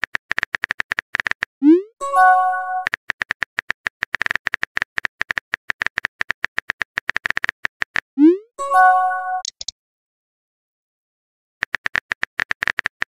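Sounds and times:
phone keyboard typing clicks: 0:02.8 - 0:08.0, 0:09.4 - 0:09.7, 0:11.6 - 0:13.0
bright chime: 0:08.6 - 0:09.4.

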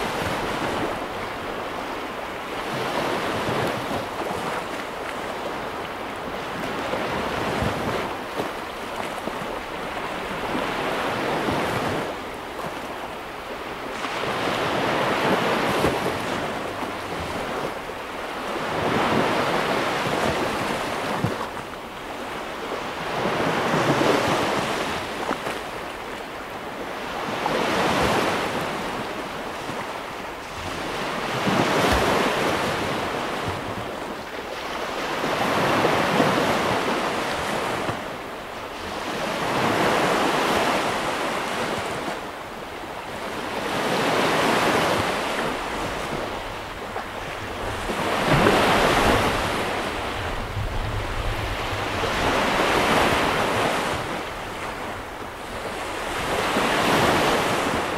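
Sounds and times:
surf breaking on sandy beach: 0:43.4 - 0:57.9.

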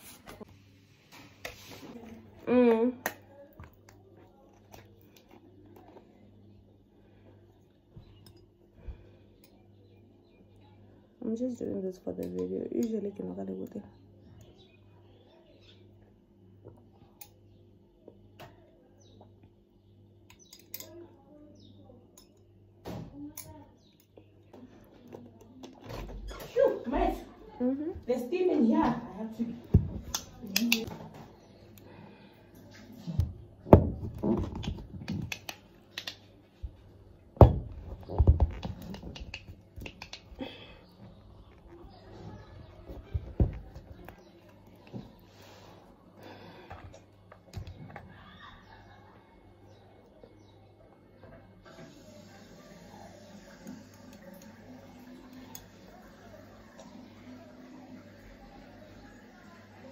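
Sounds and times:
low steady hum: 0:00.0 - 0:59.9.

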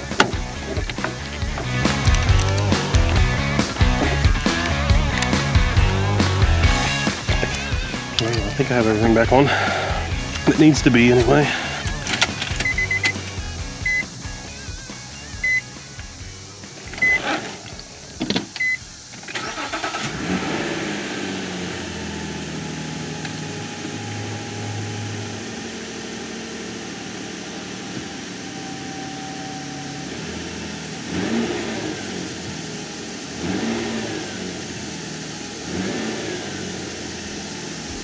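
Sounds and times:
engine revving: 0:00.0 - 0:17.8, 0:18.9 - 0:38.0
car engine starting and idling: 0:00.0 - 0:38.0.

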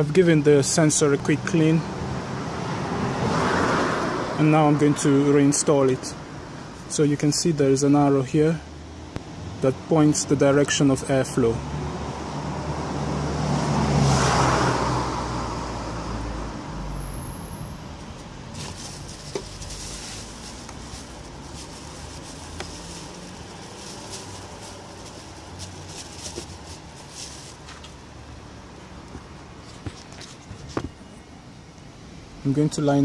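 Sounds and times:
car passing by: 0:01.8 - 0:05.4, 0:11.6 - 0:27.9
plastic housing and bag handled: 0:18.5 - 0:28.0.

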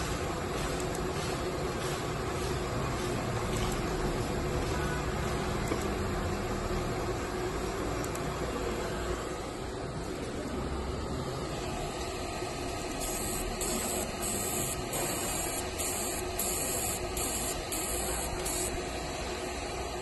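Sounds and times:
steady background noise: 0:00.0 - 0:20.0
laser engraving hiss: 0:12.4 - 0:20.0.

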